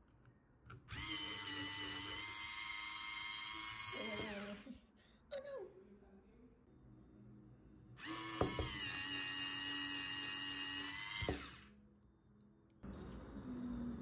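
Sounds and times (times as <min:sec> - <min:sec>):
small electric motor whirring: 0:00.9 - 0:04.7, 0:08.0 - 0:11.7.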